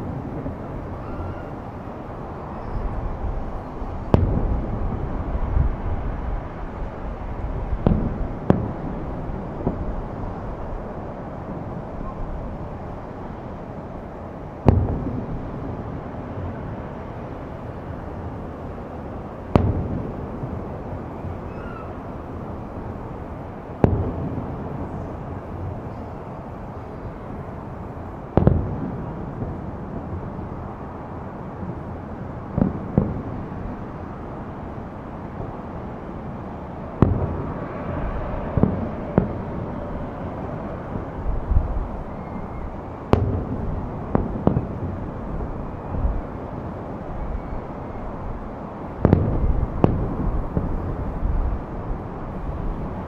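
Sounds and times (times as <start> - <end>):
steady background noise: 0.0 - 53.0
distant firework booms: 4.0 - 5.8, 43.1 - 45.0.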